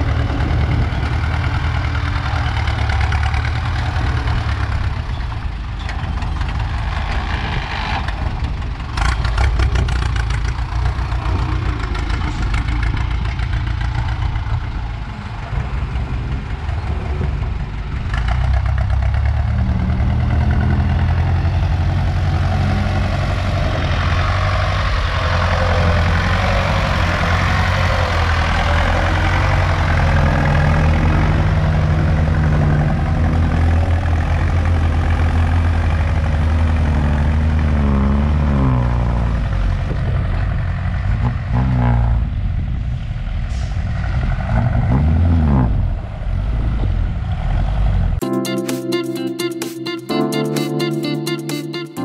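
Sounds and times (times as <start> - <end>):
tractor diesel engine under load: 0.0 - 48.2
music: 48.2 - 52.0.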